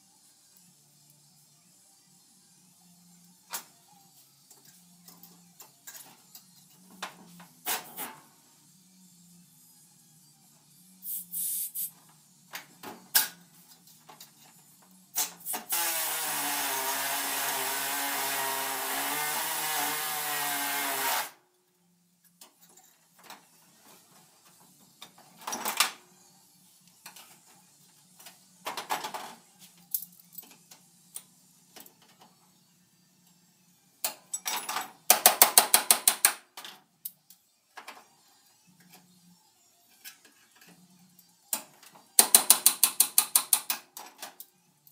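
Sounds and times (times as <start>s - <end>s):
pneumatic tool running: 15.2s - 21.4s
metal tools clinking: 34.3s - 34.8s.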